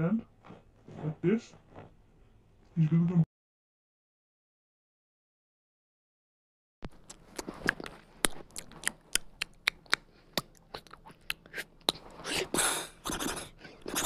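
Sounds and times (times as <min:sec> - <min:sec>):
mouth clicks and crackles: 0:06.8 - 0:14.0
breathy hissing: 0:12.2 - 0:13.9.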